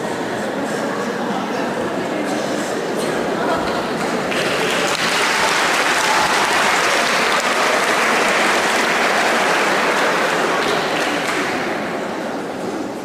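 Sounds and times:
audience applauding: 0:04.0 - 0:11.9.

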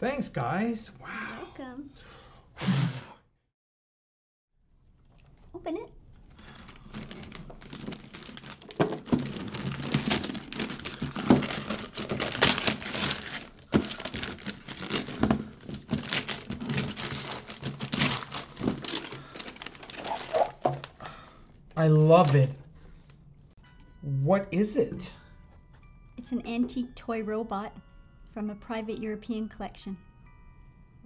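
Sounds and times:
wrapping paper tearing and crumpling: 0:06.1 - 0:21.0, 0:21.9 - 0:22.6.

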